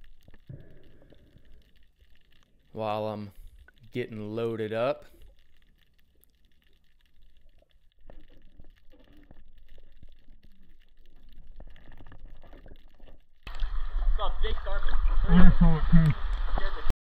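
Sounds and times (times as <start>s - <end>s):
low underwater rumble: 0.0s - 2.7s, 5.0s - 16.9s
underwater clicks and knocks: 5.2s - 13.7s.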